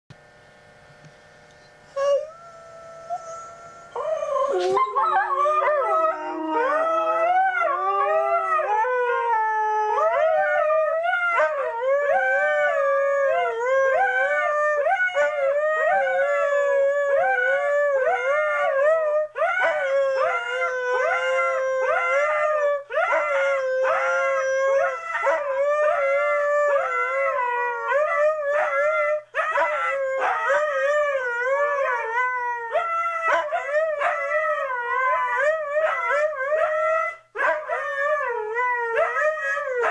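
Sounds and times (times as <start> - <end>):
dogs howling: 2.0 - 39.9.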